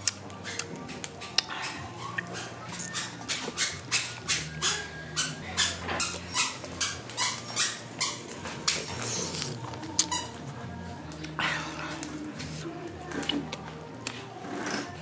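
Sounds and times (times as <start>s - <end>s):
person chewing with lip-smacking: 0.0s - 7.4s, 8.0s - 10.4s.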